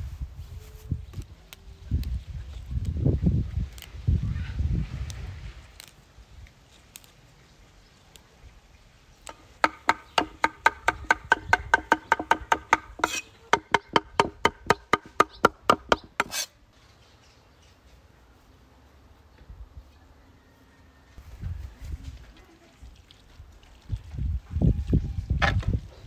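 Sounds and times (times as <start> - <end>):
cleaver chopping on wooden board: 9.6 - 16.5.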